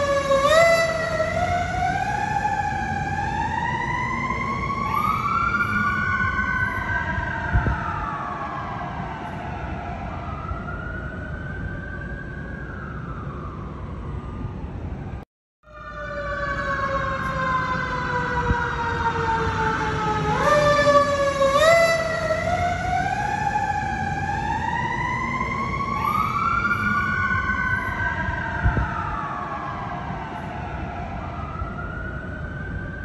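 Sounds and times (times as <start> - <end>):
fire truck siren wailing: 0.0 - 33.0.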